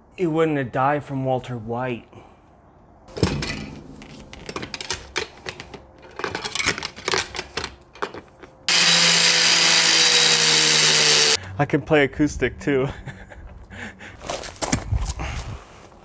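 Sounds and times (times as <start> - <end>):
handling knocks and clatter: 3.1 - 8.7
angle grinder cutting metal: 8.7 - 11.4.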